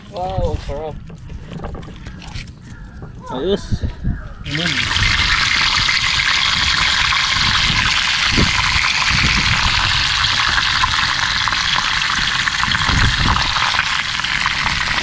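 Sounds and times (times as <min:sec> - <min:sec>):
fish frying in hot oil: 0:04.5 - 0:15.0.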